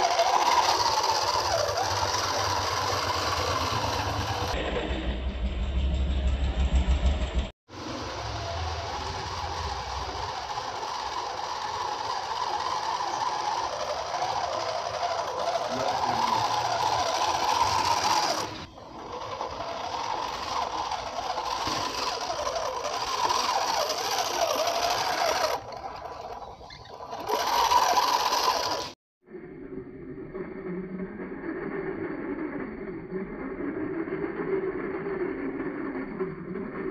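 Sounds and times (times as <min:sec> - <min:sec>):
electric motor and gearbox whining: 0:00.0 - 0:29.0.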